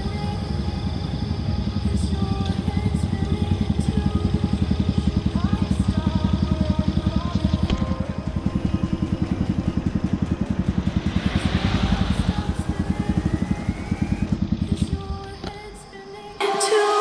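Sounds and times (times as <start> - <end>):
motorcycle engine idling: 0.0 - 16.4
thin rising tone: 3.7 - 17.0.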